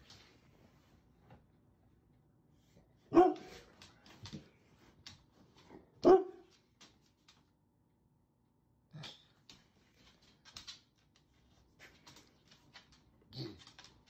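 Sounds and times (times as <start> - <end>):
large dog barking: 3.1 - 3.5, 6.0 - 6.4.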